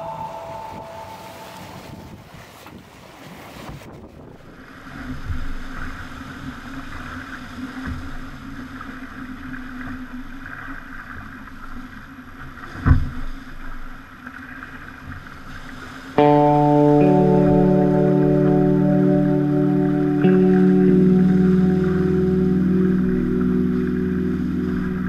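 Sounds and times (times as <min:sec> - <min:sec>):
water and wind hissing past hull: 0:00.0 - 0:25.0
steady hum: 0:16.3 - 0:25.0.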